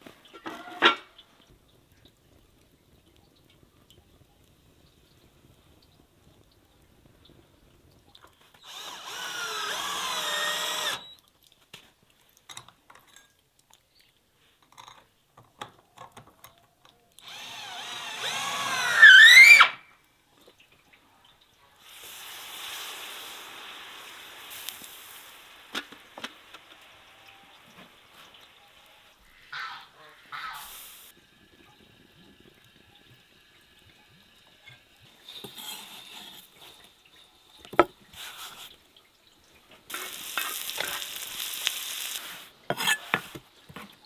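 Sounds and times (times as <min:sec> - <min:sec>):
food sizzling on hot pan: 0:08.4 - 0:11.1, 0:21.7 - 0:38.8, 0:39.8 - 0:43.9
electric drill motor whine: 0:08.6 - 0:11.1, 0:17.2 - 0:19.4.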